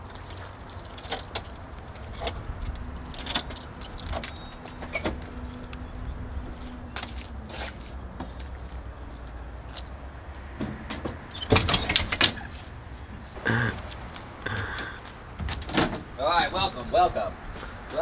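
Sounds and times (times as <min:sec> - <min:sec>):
keys jangling: 0:00.6 - 0:05.4
door latch: 0:10.9 - 0:12.4.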